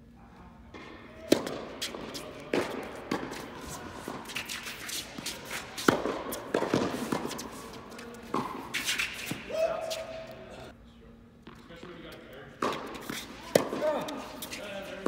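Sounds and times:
tennis ball hits echoing: 0.7 - 4.5, 5.2 - 7.5, 8.2 - 9.5, 12.6 - 14.3.

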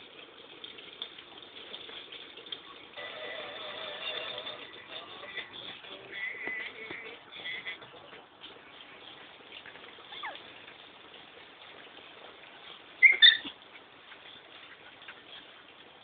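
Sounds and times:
high-pitched dog yips: 10.1 - 10.4, 13.0 - 13.6
dog whining: 10.1 - 10.5, 13.0 - 13.6.

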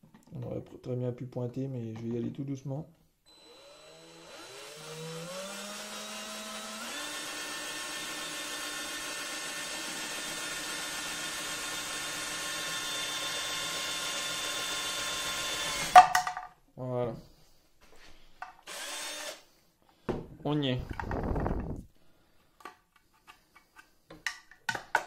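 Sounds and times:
cordless drill motor whine: 3.3 - 16.0, 18.7 - 19.4.

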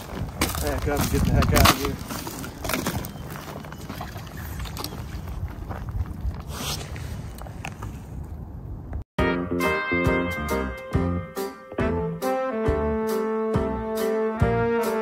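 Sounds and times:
rustling and scraping of gear: 0.0 - 8.4.

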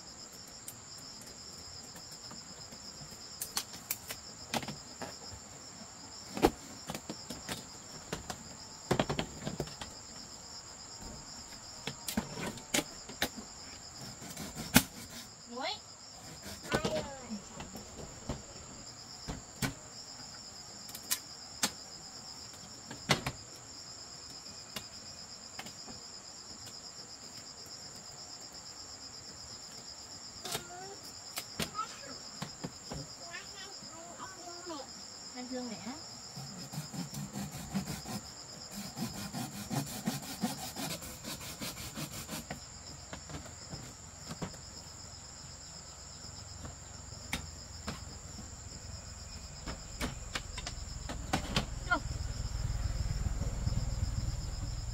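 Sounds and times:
insects chirring: 0.0 - 54.9.

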